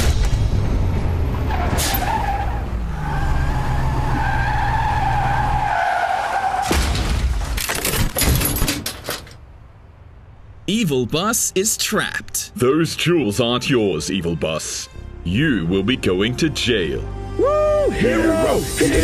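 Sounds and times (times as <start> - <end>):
tire screech: 0.9 - 6.8.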